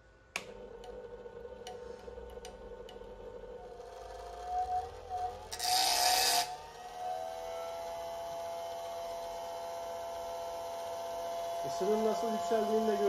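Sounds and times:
electric motor whine: 2.8 - 13.0
harsh scraping rasp: 5.5 - 6.5.

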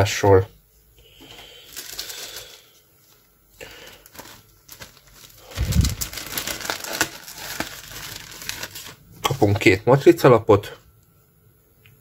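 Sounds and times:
plastic bag and paper rustling: 1.2 - 9.8.

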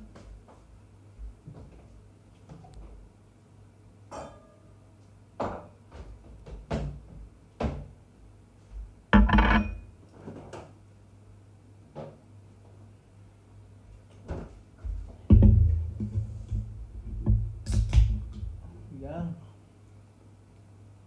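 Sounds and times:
plates knocking on stone countertop: 9.2 - 9.8.

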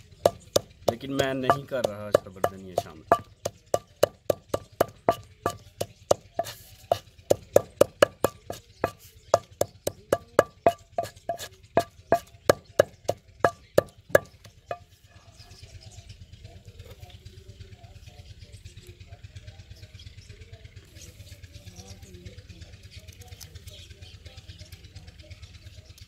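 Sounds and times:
pestle pounding in stone mortar: 0.2 - 14.9.

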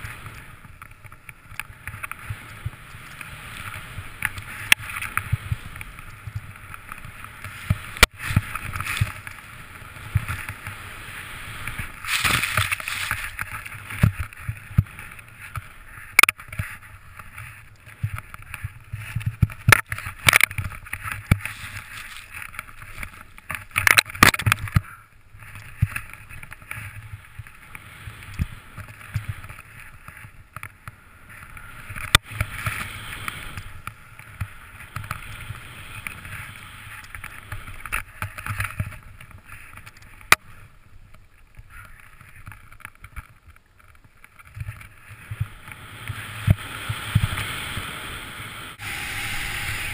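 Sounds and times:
snowboard swooshing through snow: 0.0 - 0.8, 1.7 - 23.4, 25.4 - 30.3, 31.0 - 37.9, 44.9 - 49.9.

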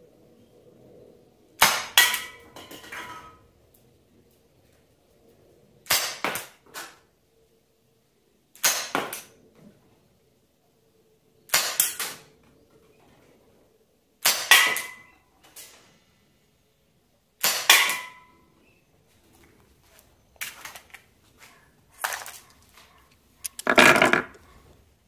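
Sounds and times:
gas revolver shots: 11.5 - 12.2, 14.2 - 15.0, 17.4 - 18.2
clatter of clicks: 23.4 - 24.4.

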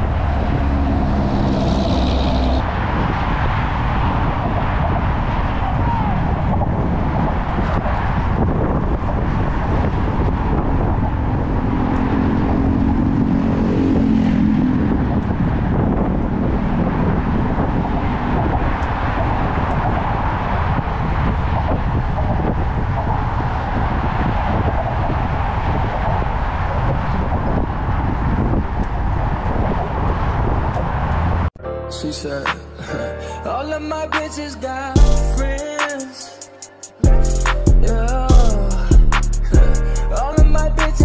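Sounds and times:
low droning vehicle tone: 0.0 - 31.5, 37.1 - 41.0
wind on microphone: 0.0 - 31.5
road traffic rushing: 0.0 - 31.6, 32.4 - 41.0.

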